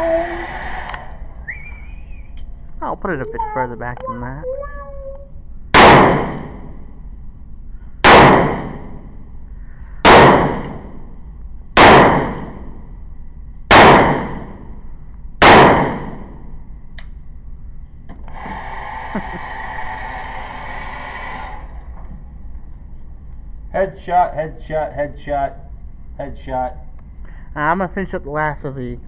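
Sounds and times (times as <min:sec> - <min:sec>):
electric motor whirring: 0:00.0 - 0:01.3, 0:18.2 - 0:21.8
revolver shots echoing indoors: 0:05.7 - 0:06.9, 0:08.0 - 0:09.2, 0:10.0 - 0:11.2, 0:11.8 - 0:12.9, 0:13.7 - 0:14.8, 0:15.4 - 0:16.6.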